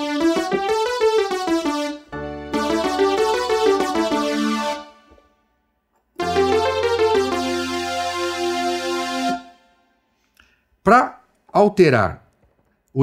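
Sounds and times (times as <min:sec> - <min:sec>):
held low synth chords: 0:00.0 - 0:05.2, 0:06.2 - 0:09.8
synth lead melody: 0:00.0 - 0:05.6, 0:06.2 - 0:10.0.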